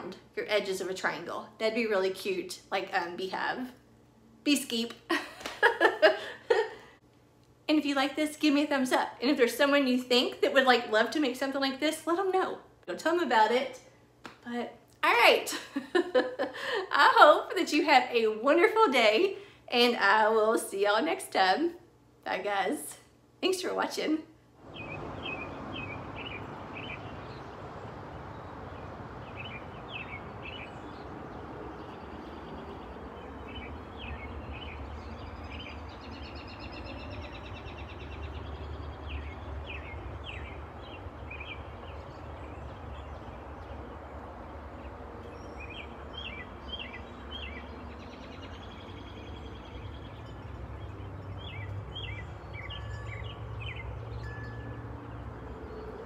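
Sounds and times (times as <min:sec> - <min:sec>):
songbirds chirping: 0:23.4 - 0:56.0.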